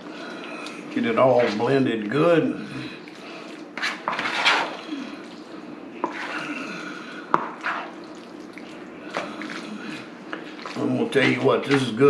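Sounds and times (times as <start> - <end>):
spoon squelching potato salad: 0.3 - 12.0.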